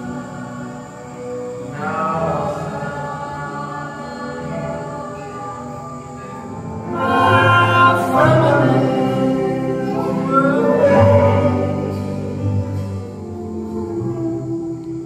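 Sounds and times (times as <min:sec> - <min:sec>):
choir voices: 0:00.0 - 0:15.0
grand piano: 0:00.0 - 0:15.0
man singing loudly: 0:06.9 - 0:13.7.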